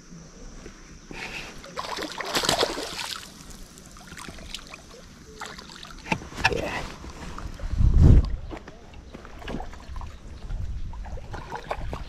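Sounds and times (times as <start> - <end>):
water splashing from thrashing fish: 1.7 - 6.0.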